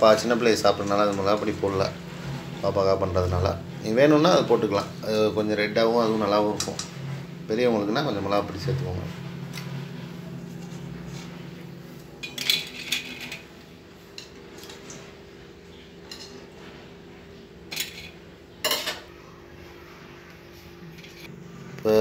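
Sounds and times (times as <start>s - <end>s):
steady low hum: 0.0s - 22.0s
steel utensils clinking on plate: 12.2s - 13.5s, 16.0s - 16.5s, 17.7s - 19.1s.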